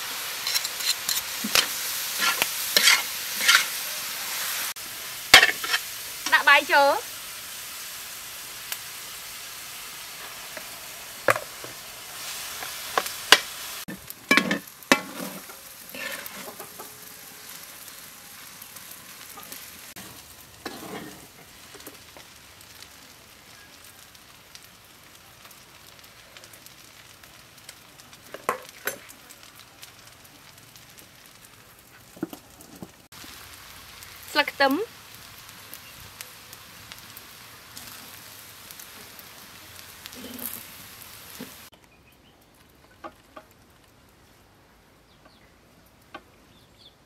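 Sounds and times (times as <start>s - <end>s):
rice sizzling in a wok: 0.0s - 47.0s
metal spatula scraping wok: 0.1s - 4.7s, 5.3s - 6.4s, 10.2s - 17.6s, 19.2s - 22.0s, 40.1s - 40.7s
spatula knocking wok: 0.4s - 3.7s, 5.3s - 5.8s, 12.5s - 17.0s.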